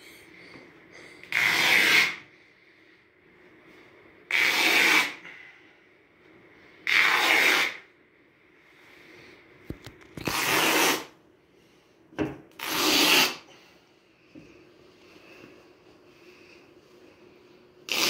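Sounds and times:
cloth tearing: 1.3 - 2.2, 4.3 - 5.2, 6.9 - 7.8, 10.2 - 11.1, 12.6 - 13.4.

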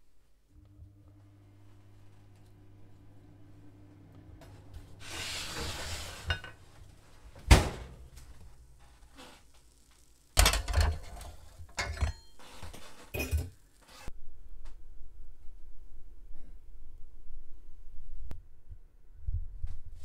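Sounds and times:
metal tray clanks and knocks: 10.4 - 12.3.

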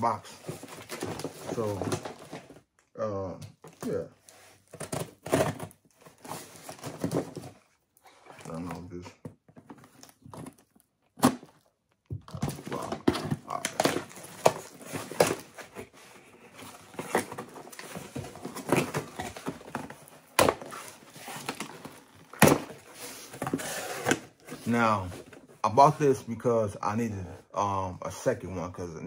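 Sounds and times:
cardboard box rustling and scraping: 4.3 - 7.6, 12.3 - 25.5.

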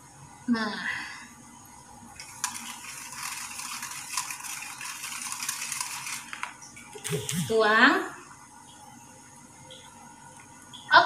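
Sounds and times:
whisk swishing batter: 2.2 - 7.4
whisk wires clicking on bowl: 2.2 - 7.5.

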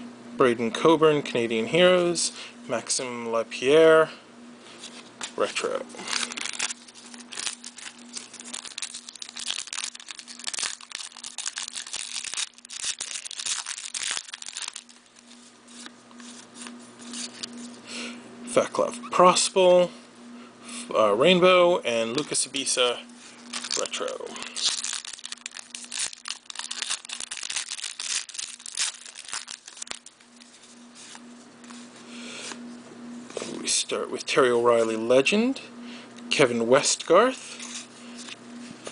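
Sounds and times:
wrapper crinkling and tearing: 6.0 - 15.9, 23.4 - 30.7.

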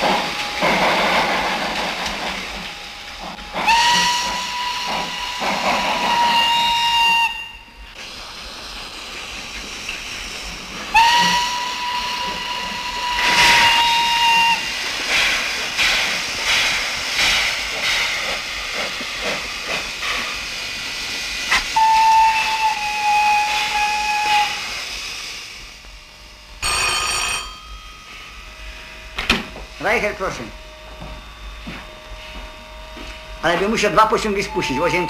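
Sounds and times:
hiss of escaping steam: 0.0 - 25.8
steam locomotive whistle blasts: 2.9 - 7.8, 10.9 - 14.7, 21.5 - 24.7, 29.8 - 35.0
telephone bell ringing: 26.6 - 28.2.

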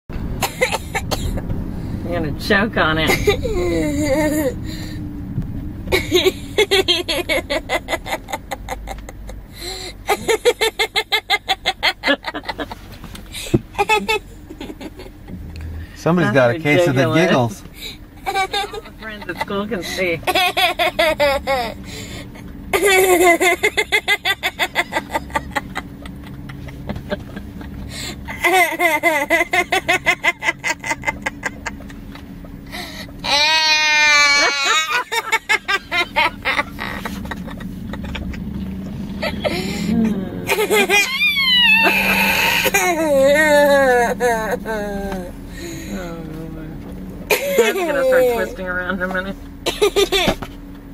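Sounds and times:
steady low hum: 0.1 - 50.9
girl giggling: 3.1 - 4.6, 5.9 - 9.4, 10.1 - 12.8, 13.4 - 15.1, 17.8 - 21.9, 32.7 - 38.4, 39.2 - 45.3, 47.3 - 48.6.

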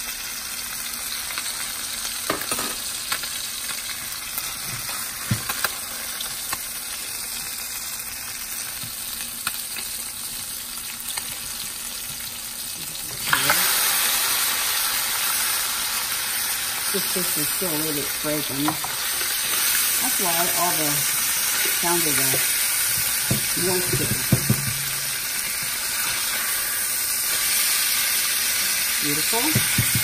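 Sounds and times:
fish sizzling in oil: 0.0 - 30.0.

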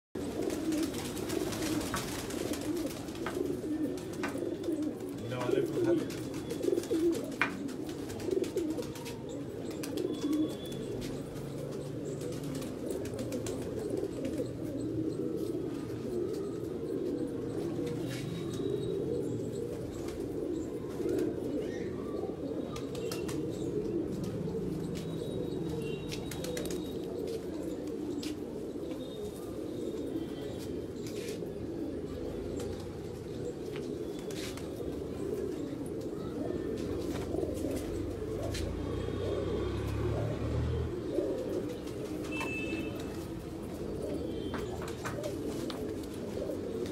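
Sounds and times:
pigeons cooing: 0.2 - 46.9
pigeon clicks and chirps: 0.3 - 15.2, 22.6 - 31.4.

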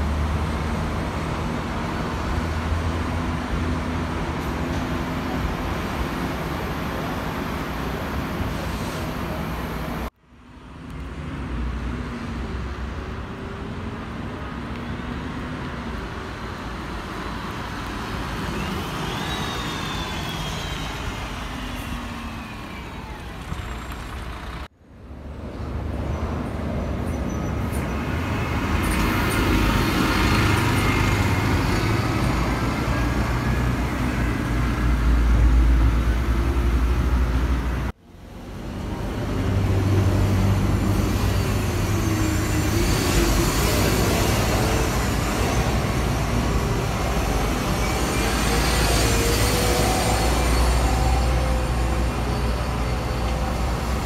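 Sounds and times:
bus low rumble: 0.0 - 54.0
buses passing: 0.0 - 54.0
cars passing: 0.0 - 54.0
high gliding bus squeaks: 18.1 - 24.7, 27.0 - 34.5, 40.2 - 54.0.

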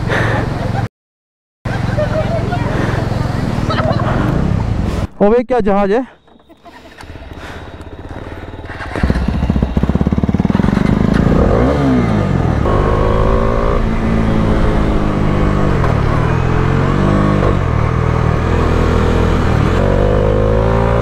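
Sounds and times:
motorcycle engine accelerating: 6.8 - 21.0.

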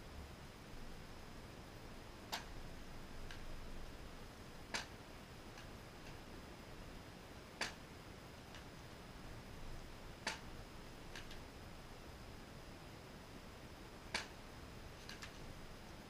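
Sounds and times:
toss machine sharp clicks: 14.1 - 14.4.

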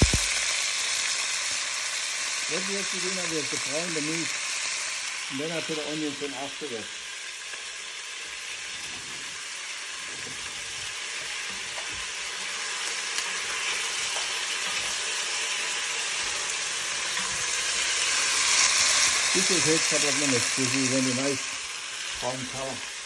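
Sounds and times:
meat sizzling in hot fat: 0.0 - 23.0
wooden spoon stirring in a pot: 8.4 - 19.4.

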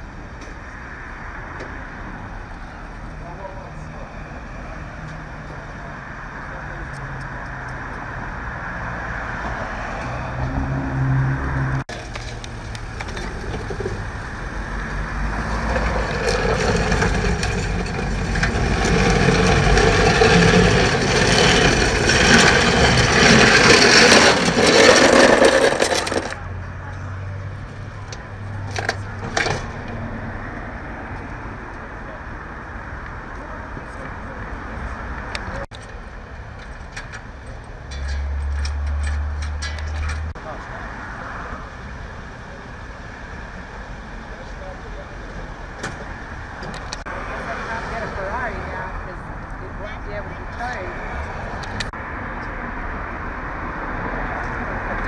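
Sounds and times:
rushing scraping noise: 12.0 - 26.6.

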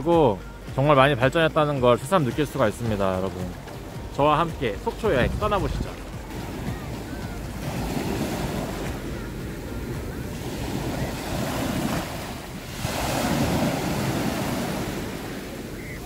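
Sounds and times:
small waves breaking on beach: 0.6 - 16.0
wind noise on microphone: 5.0 - 16.0.

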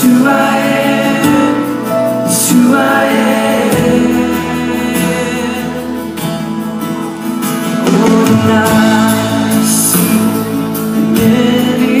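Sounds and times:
person singing: 0.0 - 6.6, 7.7 - 12.0
guitar: 0.0 - 12.0
live band music: 0.0 - 12.0.

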